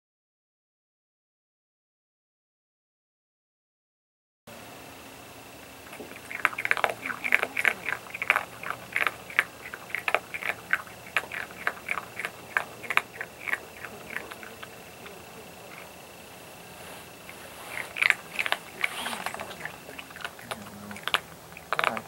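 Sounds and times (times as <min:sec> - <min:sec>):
animal crunching food: 0:05.8 - 0:22.0.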